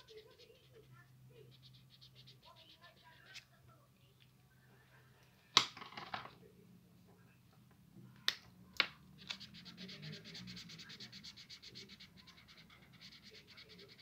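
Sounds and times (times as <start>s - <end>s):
marker scratching on paper: 0.0s - 3.6s, 9.2s - 14.0s.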